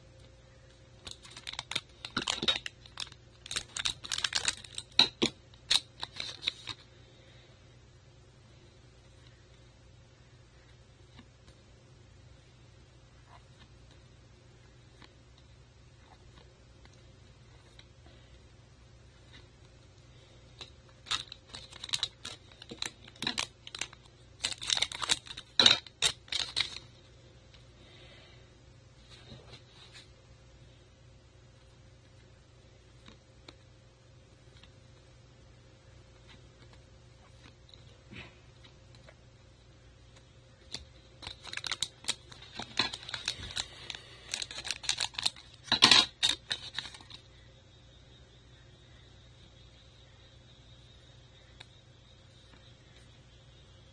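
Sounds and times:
foil wrapper crinkling: 1.0 - 6.9, 20.6 - 26.9, 40.7 - 47.2.

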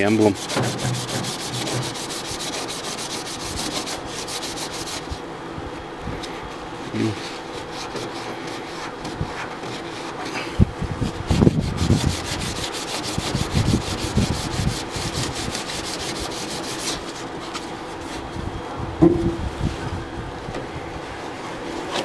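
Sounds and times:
sandpaper rubbing on metal: 0.0 - 5.2, 6.9 - 10.4, 11.1 - 18.2
dull knocks: 19.0 - 19.4.

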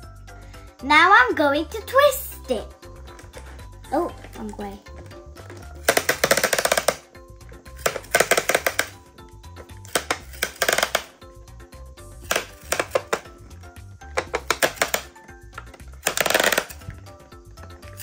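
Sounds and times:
sticker machine plastic clicking: 5.6 - 7.0, 7.8 - 9.0, 9.8 - 11.1, 12.2 - 13.3, 14.1 - 17.0.

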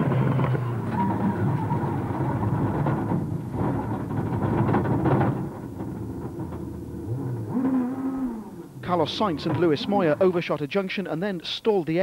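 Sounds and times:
rally car engine revving: 0.0 - 10.6
gravel and tyre noise: 0.0 - 11.8.

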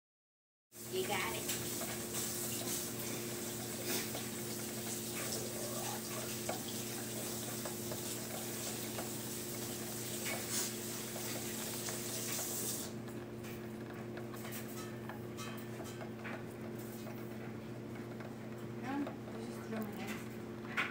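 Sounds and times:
hamster gnawing metal bars: 13.4 - 20.9.

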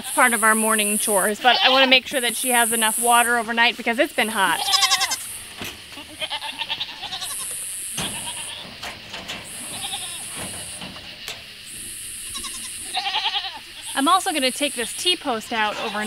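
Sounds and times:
buzzing insect chorus: 0.0 - 16.0
goats bleating: 1.2 - 3.5, 4.2 - 16.0.

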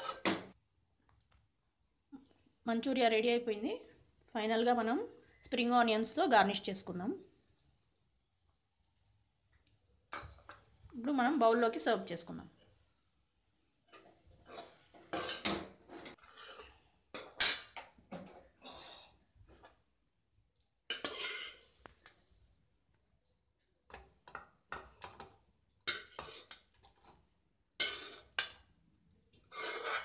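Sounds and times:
metal spoon scraping steel pan: 0.0 - 0.4, 13.9 - 17.9, 20.9 - 21.8, 23.9 - 27.2, 27.8 - 28.6, 29.4 - 30.0.

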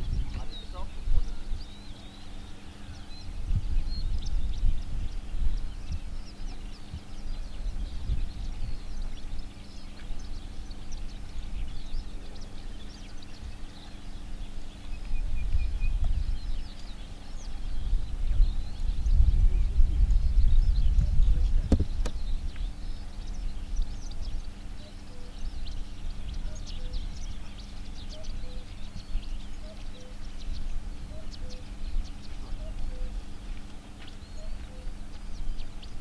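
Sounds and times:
wind buffeting microphone: 0.0 - 24.7
faint steady hum: 0.0 - 36.0
small birds chirping: 0.0 - 36.0.

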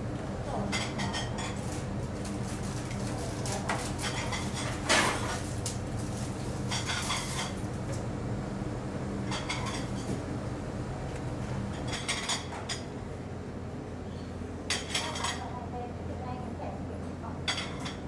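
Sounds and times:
plates and utensils clinking: 11.8 - 12.9, 14.7 - 15.5, 17.4 - 18.0.

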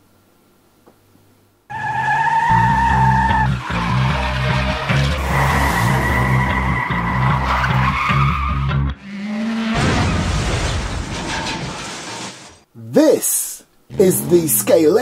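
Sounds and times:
racing cars at speed: 1.7 - 12.4
tyre skids: 1.7 - 12.6.

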